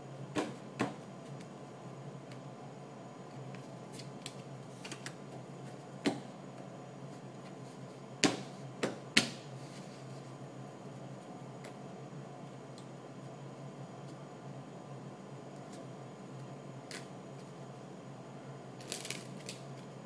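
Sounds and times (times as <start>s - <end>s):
playing cards handled: 18.8s - 19.9s.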